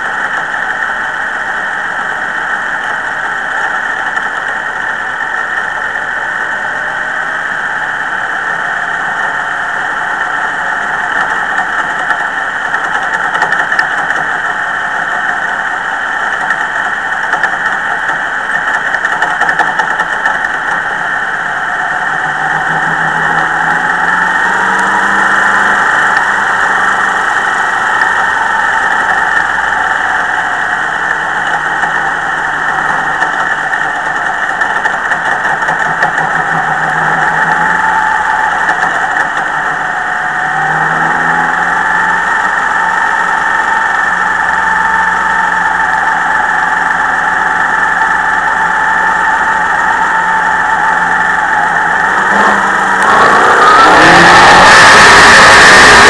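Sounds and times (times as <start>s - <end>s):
race car engine running: 0.0s - 56.0s.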